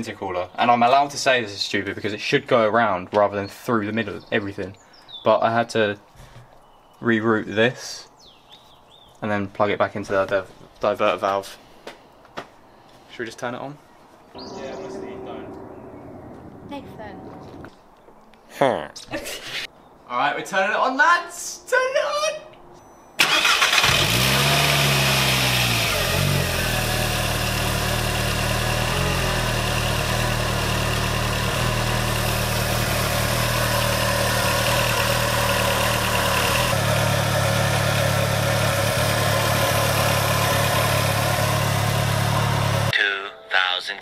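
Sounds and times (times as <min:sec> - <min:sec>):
car engine starting and idling: 0:23.2 - 0:42.9.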